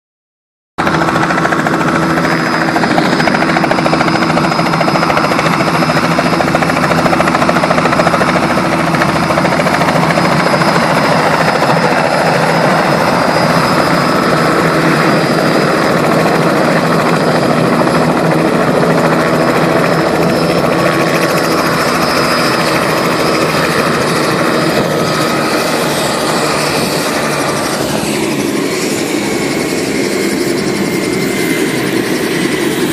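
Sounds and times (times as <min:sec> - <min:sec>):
helicopter rotor noise: 0:00.8 - 0:32.9
helicopter turbine whining: 0:00.8 - 0:32.9.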